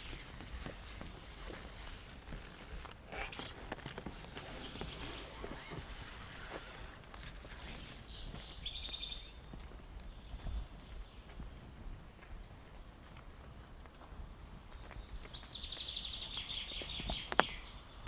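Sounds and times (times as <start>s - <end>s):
footsteps on wet path: 0.0s - 18.0s
high bird chirp: 7.6s - 11.3s, 14.6s - 18.0s.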